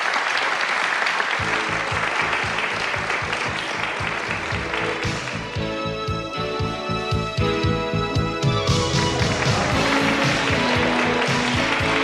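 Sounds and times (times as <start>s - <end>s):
audience applauding: 0.0s - 5.9s, 8.4s - 12.0s
music with steady beat: 1.4s - 12.0s.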